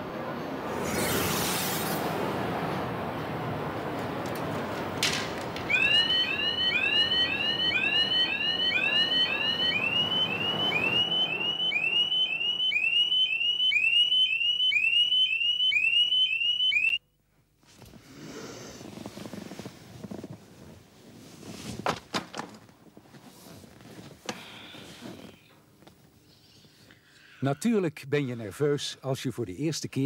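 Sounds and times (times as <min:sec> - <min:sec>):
rushing noise: 0:00.4 - 0:05.0
alarm clock chirping beeps: 0:05.7 - 0:17.0.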